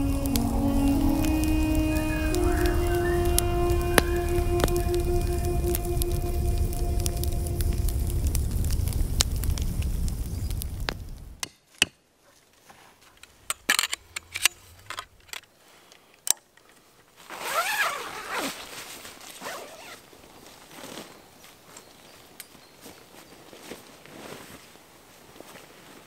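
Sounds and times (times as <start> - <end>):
metal tent pole clicking: 13.2 - 15.4
zipper being pulled: 17.3 - 18.6, 19.4 - 20.0.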